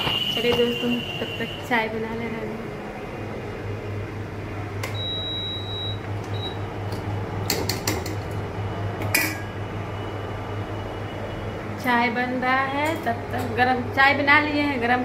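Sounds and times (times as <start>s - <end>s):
induction cooktop humming: 0.0s - 15.0s
high beep: 4.9s - 6.6s
spoon clinking against steel pot: 9.0s - 9.5s.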